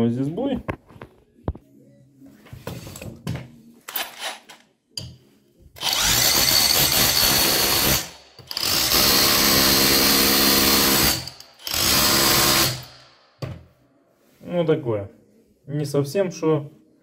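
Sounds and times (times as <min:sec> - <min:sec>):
rotary hammer drilling on steel: 0:05.8 - 0:12.9.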